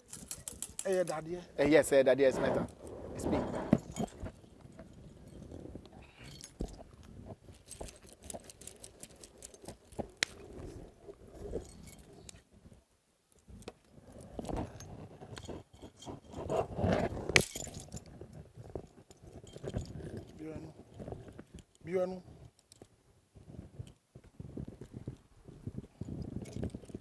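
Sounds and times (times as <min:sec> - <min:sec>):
metal bracelets jangling: 0:00.0 - 0:01.3, 0:03.6 - 0:10.6, 0:11.4 - 0:12.4, 0:14.1 - 0:22.9, 0:25.7 - 0:27.0.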